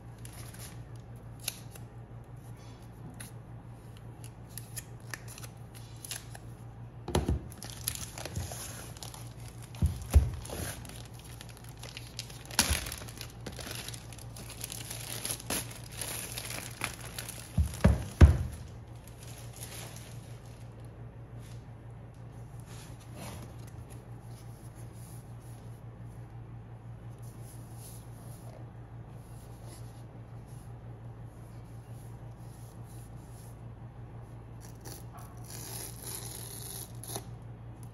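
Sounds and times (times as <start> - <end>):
packaging crinkling and tearing: 4.5 - 6.5, 7.5 - 20.9.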